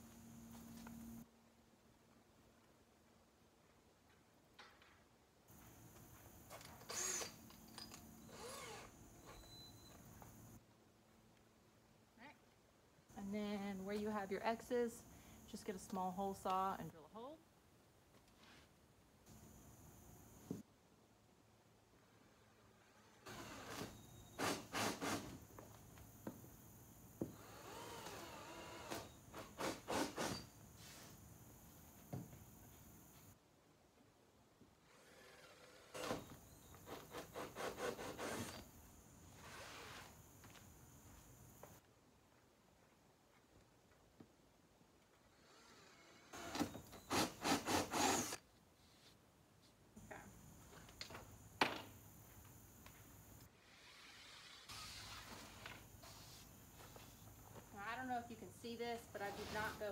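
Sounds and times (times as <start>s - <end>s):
hole saw drilling into wood: 6.8s - 7.5s, 8.2s - 9.0s, 23.2s - 25.4s, 27.3s - 30.5s, 34.9s - 38.6s, 45.3s - 48.4s, 53.6s - 55.6s.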